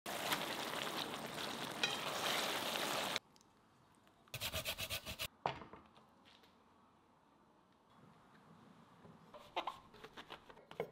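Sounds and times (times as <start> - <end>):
food sizzling in a frying pan: 0.1 - 3.2.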